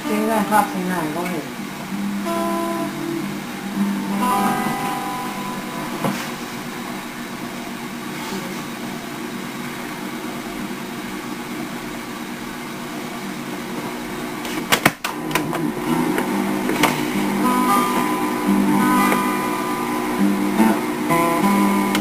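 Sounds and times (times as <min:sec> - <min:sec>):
low hum: 0:00.0 - 0:09.4
tape hiss: 0:00.0 - 0:22.0.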